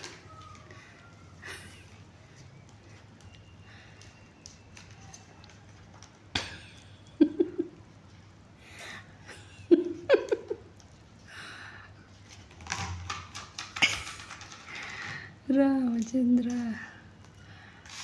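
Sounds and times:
person laughing: 1.4 - 2.0, 7.2 - 7.8, 9.2 - 10.7.

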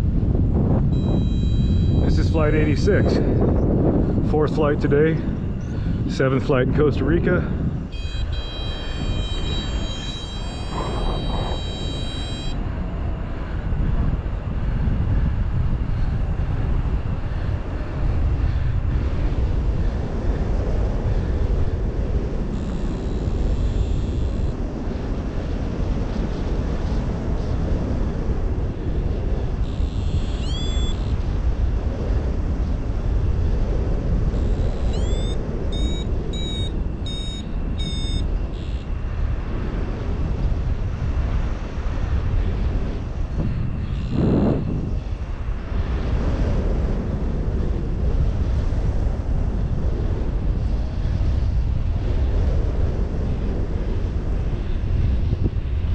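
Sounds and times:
wind rushing over microphone: 0.0 - 55.9
short beeps: 0.9 - 2.2, 7.9 - 12.6, 29.7 - 31.1, 34.4 - 39.0
rising electronic tone: 1.0 - 2.0, 7.9 - 12.6, 29.7 - 31.1, 34.4 - 38.8.

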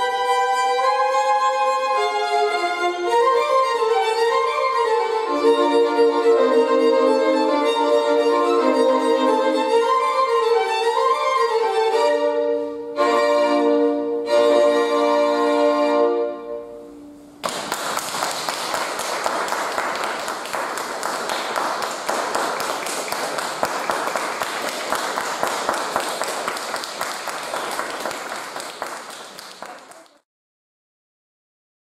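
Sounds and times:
violin trio chord: 0.0 - 17.4
audience applause: 17.4 - 30.2.

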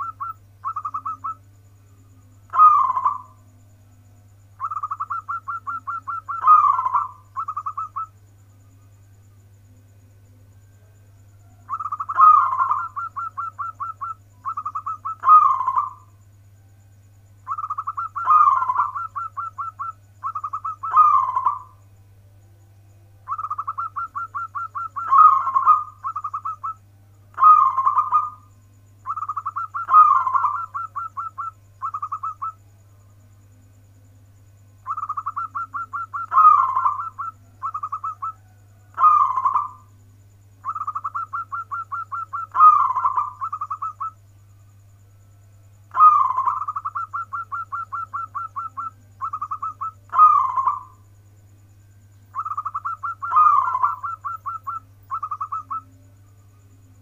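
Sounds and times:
dove cooing: 0.0 - 1.4, 2.2 - 3.5, 4.6 - 8.2, 11.3 - 16.1, 17.4 - 21.8, 23.3 - 32.6, 34.8 - 39.9, 40.6 - 44.2, 45.9 - 51.1, 52.3 - 56.2
steady low hum: 0.0 - 57.0.

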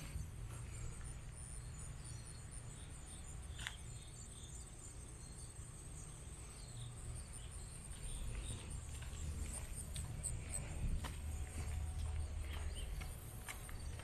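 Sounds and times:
faint footsteps on concrete: 0.0 - 1.4, 3.5 - 4.0, 7.5 - 14.0
crickets trilling: 0.0 - 14.0.

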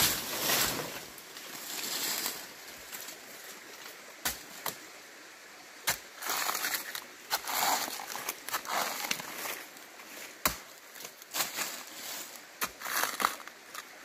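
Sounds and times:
steady high hiss: 0.0 - 14.0
machete chopping tree trunk: 10.4 - 10.7.

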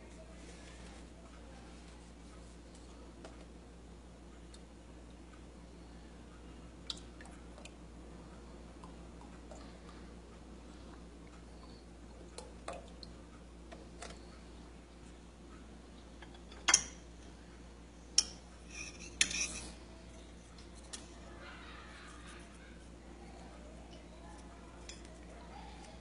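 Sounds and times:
spoon scraping bowl: 18.6 - 19.8.

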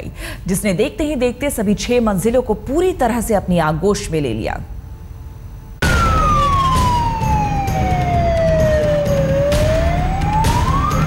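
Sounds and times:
emergency siren wailing: 5.8 - 11.0.

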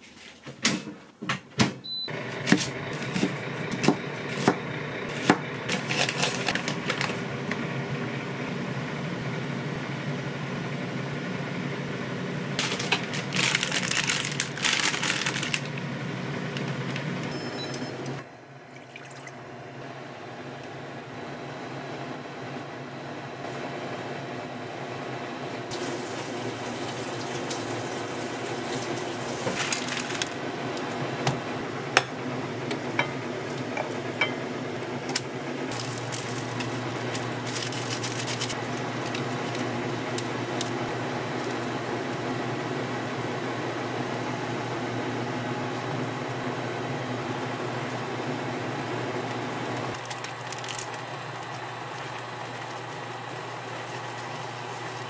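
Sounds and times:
wooden spoon stirring: 35.7 - 40.8.

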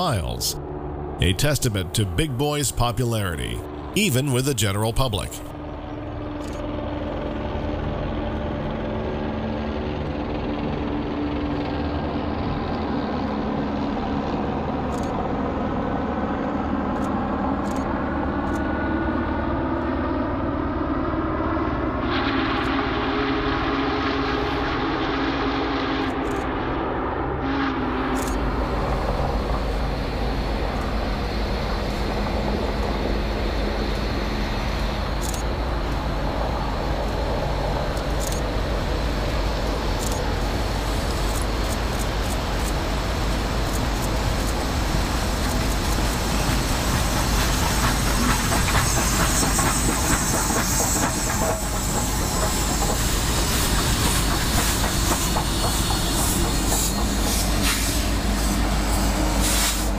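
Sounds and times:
train rumbling past: 20.4 - 59.9
wheels clacking over rail joints: 45.5 - 57.8.

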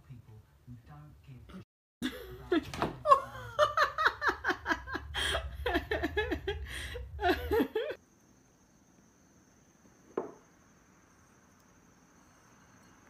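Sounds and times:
person laughing hard: 2.0 - 8.0.

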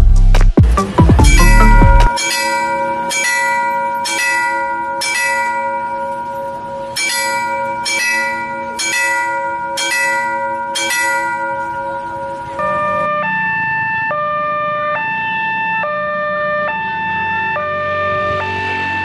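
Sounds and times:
level crossing warning bell: 1.3 - 19.0.

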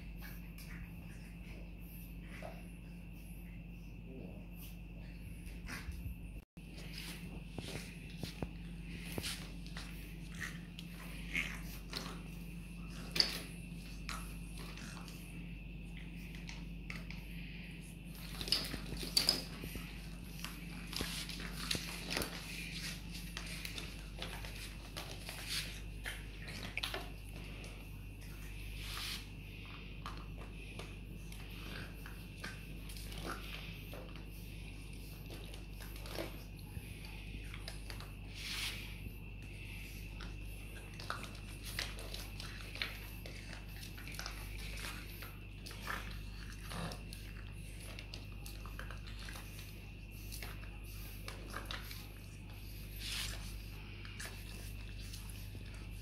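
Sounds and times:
steady low hum: 0.0 - 56.0
dog chewing and tugging clothes: 18.1 - 28.4, 40.2 - 56.0.

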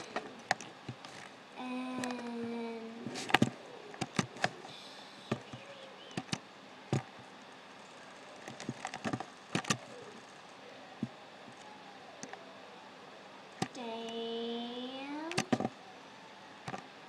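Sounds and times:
faint steady hiss: 0.0 - 17.0
computer mouse clicking: 3.3 - 4.6, 5.3 - 7.1, 8.4 - 10.3, 15.3 - 15.7.

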